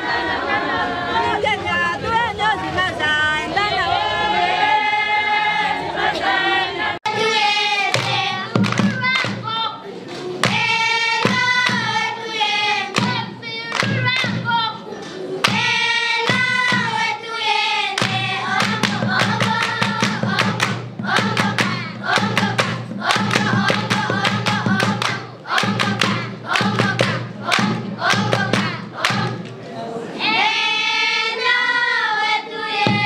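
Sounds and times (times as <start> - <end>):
girls singing together: 0.0 - 1.5, 3.5 - 33.0
hand clapping: 7.9 - 9.5, 12.9 - 14.5, 18.0 - 29.6.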